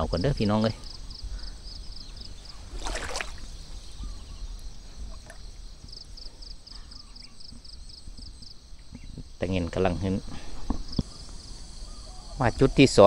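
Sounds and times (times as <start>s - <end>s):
insect chirping in quick pulses: 0.0s - 13.0s
fish splashing at water surface: 2.7s - 3.6s.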